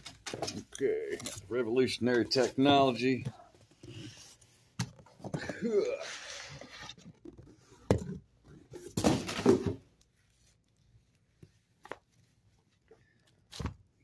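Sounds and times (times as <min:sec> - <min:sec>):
comics stack set down thud: 0:08.9 - 0:09.8.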